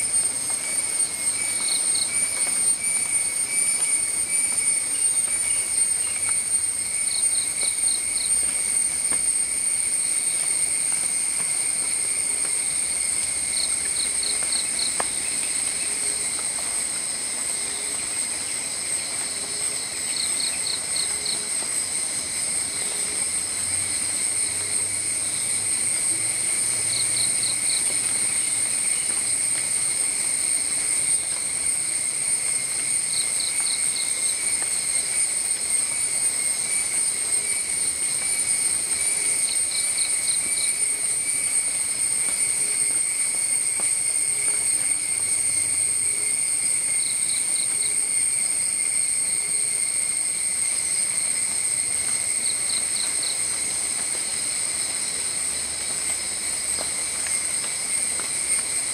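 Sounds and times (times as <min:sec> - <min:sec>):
insects droning: 0:00.0 - 0:58.9.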